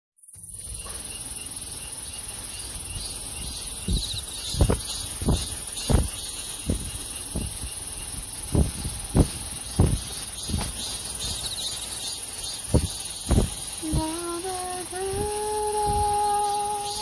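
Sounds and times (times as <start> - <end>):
crickets trilling: 0.3 - 17.0
pulsing insect chirp: 0.3 - 17.0
soft low thumps: 3.0 - 11.4, 12.7 - 14.4.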